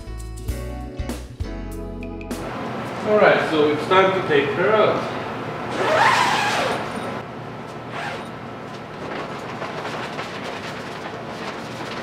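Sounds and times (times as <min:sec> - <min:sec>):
tarp fabric rustling and scraping: 0:05.7 - 0:06.9, 0:07.9 - 0:12.0
zipper pulled open on fabric door: 0:05.7 - 0:07.1, 0:07.9 - 0:08.3.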